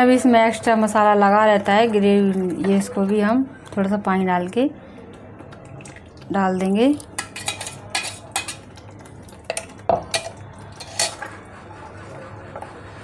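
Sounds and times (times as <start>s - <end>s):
metal spoon clinking against pan: 7.2s - 8.7s, 9.5s - 11.3s.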